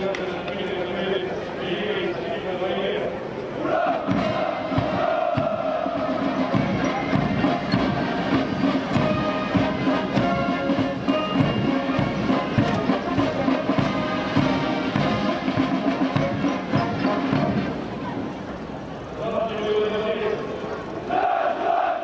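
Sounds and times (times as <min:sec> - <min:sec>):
brass band playing a march: 0:03.6 - 0:18.3
steady drumbeat: 0:03.8 - 0:17.8.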